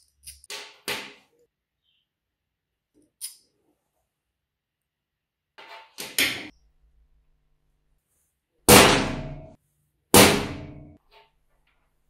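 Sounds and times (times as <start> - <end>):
hammer striking metal punch: 8.7 - 9.6, 10.2 - 11.0.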